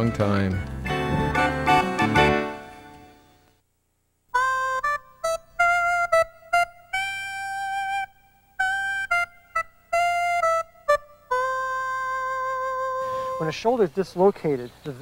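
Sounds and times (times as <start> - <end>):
keyboard jingle: 0.0 - 3.2.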